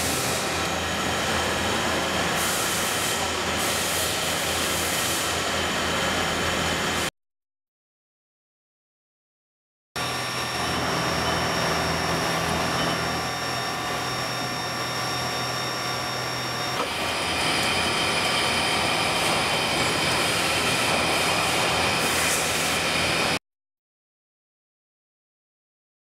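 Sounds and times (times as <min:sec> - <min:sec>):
lathe cutting metal: 0:00.0 - 0:07.0, 0:10.0 - 0:23.4.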